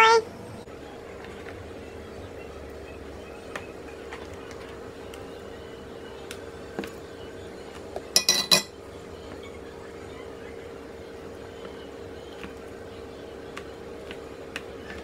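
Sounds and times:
utensils clinking and clattering: 8.2 - 8.8.

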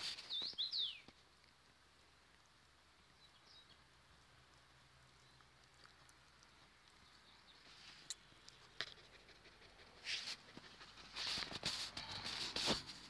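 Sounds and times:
dog panting: 8.6 - 12.9.

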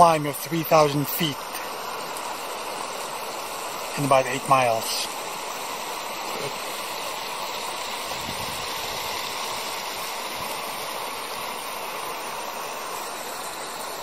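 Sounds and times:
creek water running over rocks: 0.0 - 14.0.

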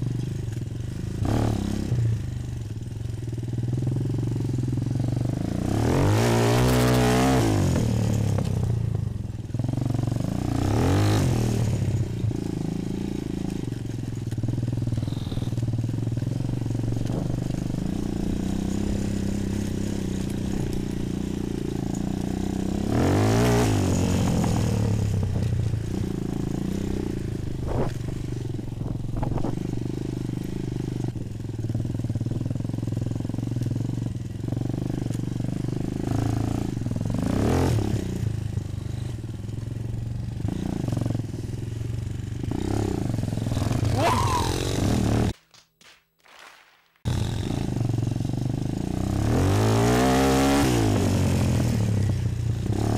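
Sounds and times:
quad engine revving: 0.9 - 2.4, 3.8 - 9.0, 9.6 - 13.6, 14.7 - 31.0, 34.5 - 39.2, 40.4 - 41.6, 42.4 - 45.4, 47.1 - 52.9.

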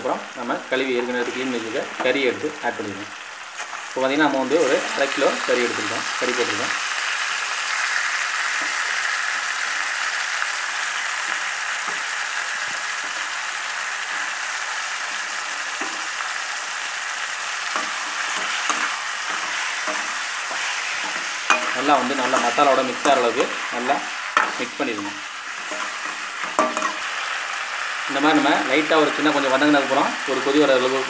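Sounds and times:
chicken sizzling in hot oil: 0.0 - 31.0
spatula scraping a pan: 17.3 - 27.3.

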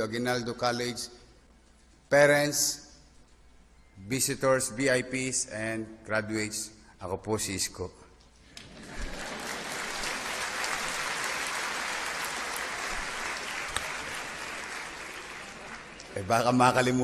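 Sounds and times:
large audience applauding: 8.6 - 17.0.

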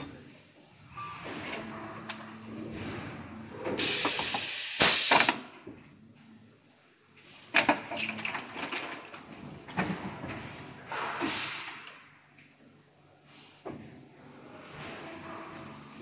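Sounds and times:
compressed air hiss: 3.8 - 5.4, 10.9 - 11.8.

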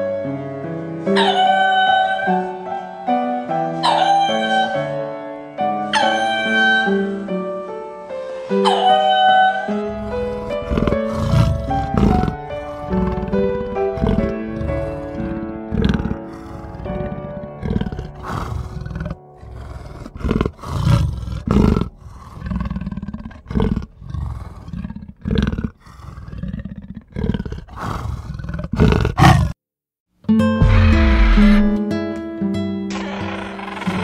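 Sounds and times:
large animal roaring and grunting: 9.8 - 29.6, 30.6 - 31.8, 32.9 - 34.0
guitar music: 30.3 - 34.0.

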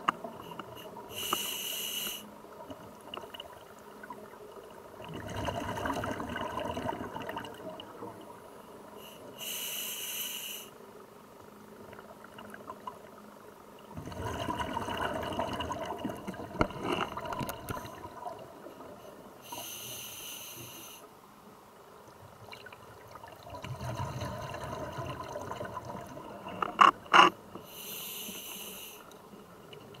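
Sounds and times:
regulator inhalation hiss: 0.8 - 2.3, 9.0 - 10.8, 19.4 - 21.1, 27.6 - 29.1
bubbling exhalation underwater: 14.0 - 17.9.

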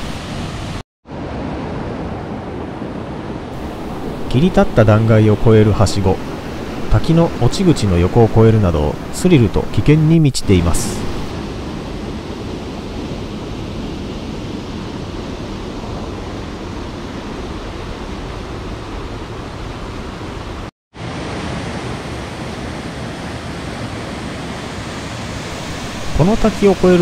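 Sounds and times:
stream rushing over rocks: 25.4 - 27.0.

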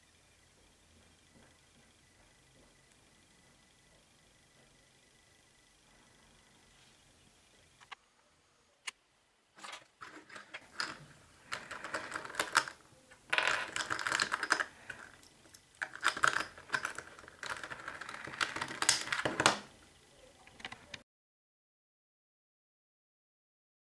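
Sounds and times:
speed cube clicking and clattering: 10.0 - 19.7.

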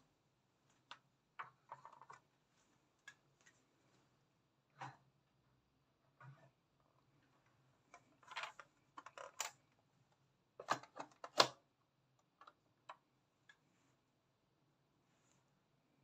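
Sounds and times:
plastic toys clicking and knocking: 0.9 - 2.2, 8.0 - 9.6, 10.6 - 11.6.

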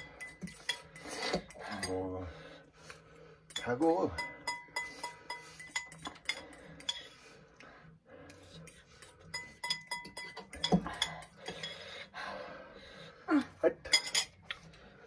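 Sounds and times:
cutlery clinking on ceramic bowls: 0.0 - 2.0, 3.5 - 7.2, 8.6 - 11.9, 13.8 - 14.6.

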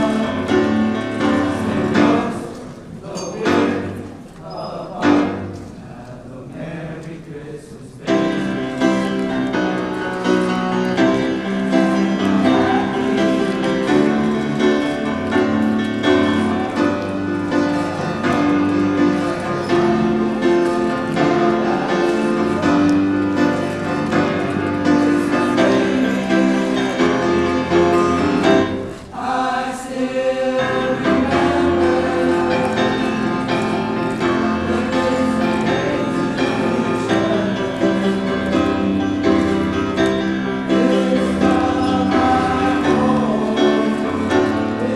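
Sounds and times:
men's choir singing: 0.0 - 44.9.

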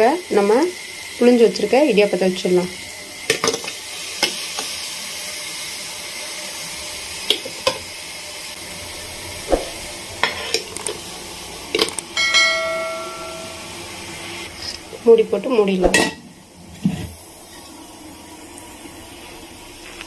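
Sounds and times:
steam hissing: 0.0 - 15.0
metal plates clinking: 11.8 - 14.0
metal striking and ringing: 12.2 - 14.0.

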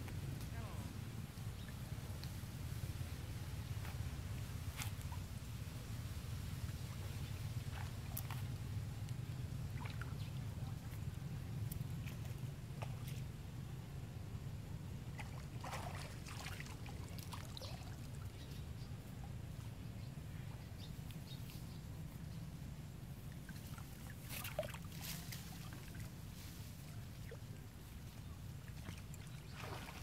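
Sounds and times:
steady low rumble: 0.0 - 29.6
water splashing and lapping: 3.6 - 5.6, 6.5 - 11.1, 11.7 - 13.4, 15.0 - 18.4, 23.1 - 30.0.

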